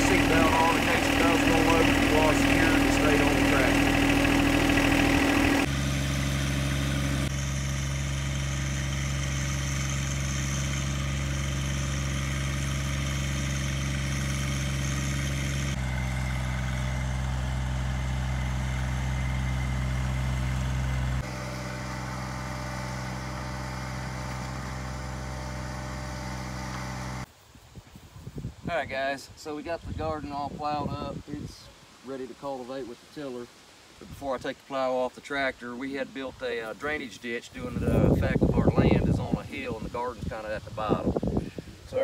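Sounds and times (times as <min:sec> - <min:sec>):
tractor diesel engine running: 0:00.0 - 0:27.3.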